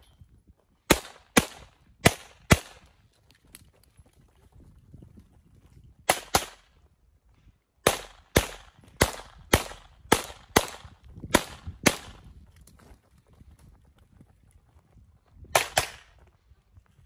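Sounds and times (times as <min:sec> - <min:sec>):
pistol shots with echo: 0:00.9 - 0:02.8, 0:07.8 - 0:12.2.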